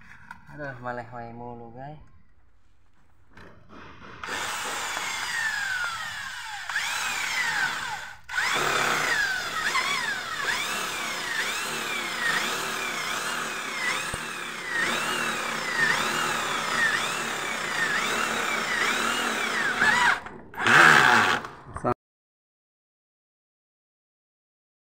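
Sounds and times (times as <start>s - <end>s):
electric drill drilling into metal: 4.2s - 21.5s.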